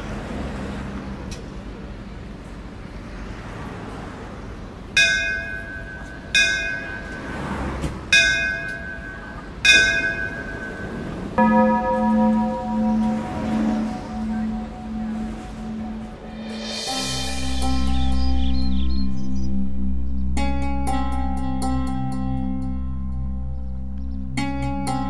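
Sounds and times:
bell strokes ringing: 5.0s - 7.4s, 8.2s - 18.0s
held pulsing tone: 10.8s - 18.2s.

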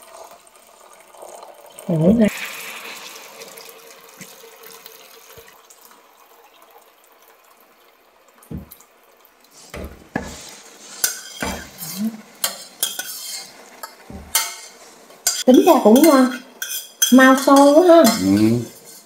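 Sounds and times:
running tap hiss: 0.0s - 18.8s
dishes and pots clinking: 9.7s - 19.0s.

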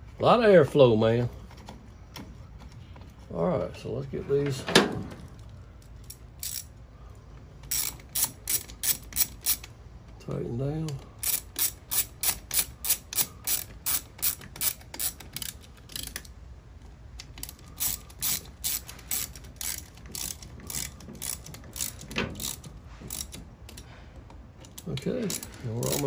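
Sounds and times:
ratchet clicking: 5.3s - 6.8s, 7.6s - 9.8s, 11.2s - 16.4s, 17.2s - 23.9s, 24.6s - 26.0s.

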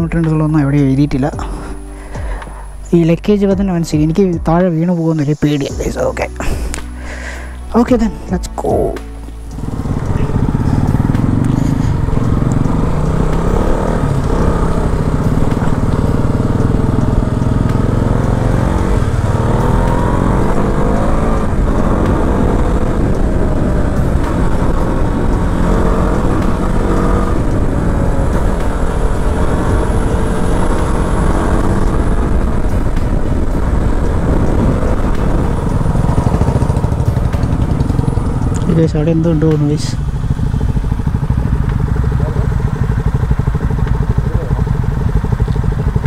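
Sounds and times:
motorcycle engine running: 0.0s - 46.0s
wind and road noise: 0.0s - 46.0s.

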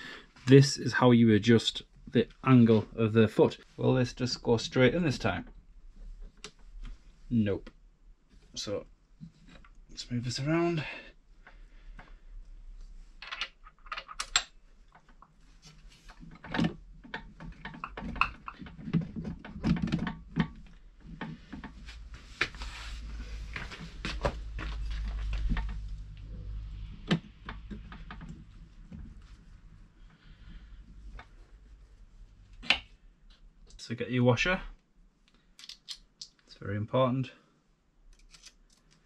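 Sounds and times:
metal parts clicking and knocking: 13.2s - 15.1s, 16.1s - 20.8s, 35.6s - 36.4s.

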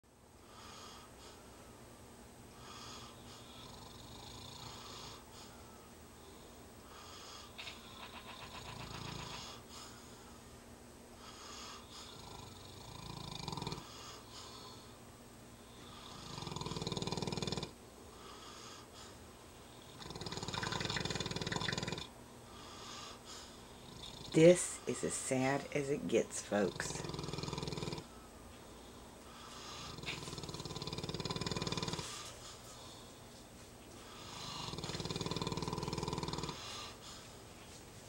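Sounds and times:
person snoring: 2.6s - 5.2s, 11.6s - 14.8s, 15.8s - 17.8s, 19.8s - 22.1s, 23.8s - 25.6s, 26.6s - 28.1s, 29.6s - 32.3s, 34.1s - 37.0s.

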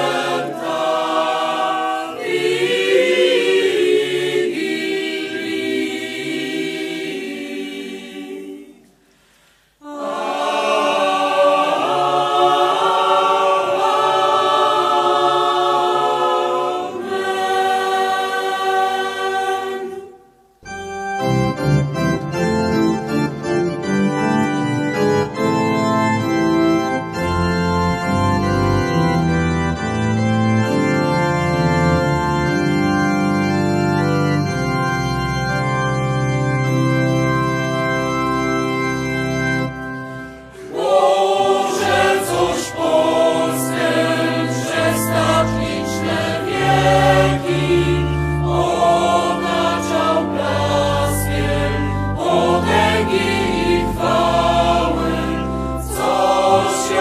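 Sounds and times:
mixed choir singing unaccompanied: 0.0s - 9.0s, 9.8s - 20.3s, 40.5s - 57.0s
organ sustained chords: 0.0s - 57.0s.

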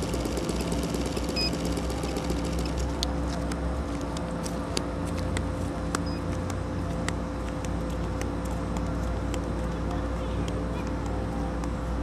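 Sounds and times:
model engine idling: 0.0s - 3.0s.

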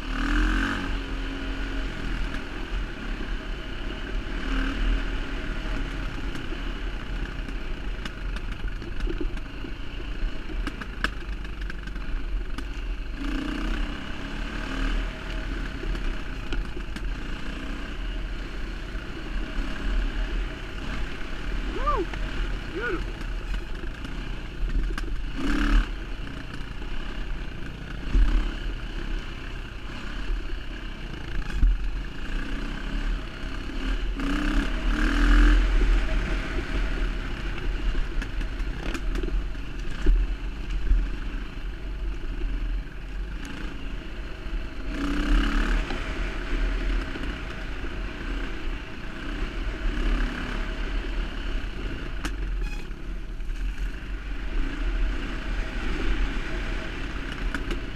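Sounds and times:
dirt bike engine revving: 0.0s - 8.5s, 13.1s - 16.4s, 17.0s - 24.6s, 25.2s - 38.0s, 44.8s - 47.5s, 49.2s - 52.9s.

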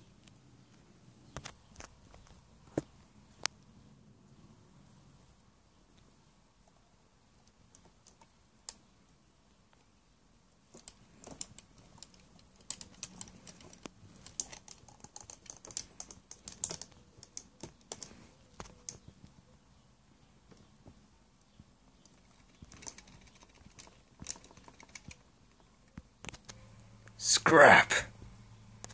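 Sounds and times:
plastic action figure parts clicking: 10.7s - 18.1s.

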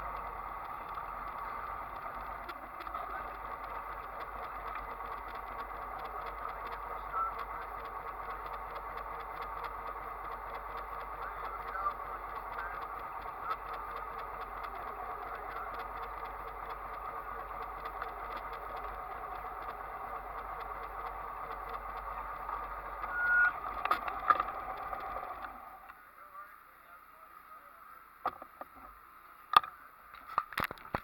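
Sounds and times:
engine idling: 0.0s - 29.9s
brief high tone: 23.0s - 23.6s.

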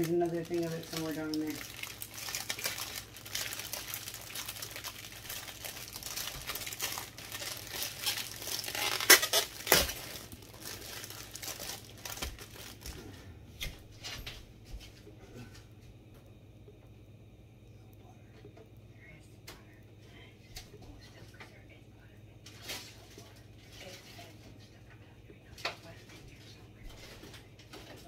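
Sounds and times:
plastic wrap crinkling: 0.0s - 13.8s.

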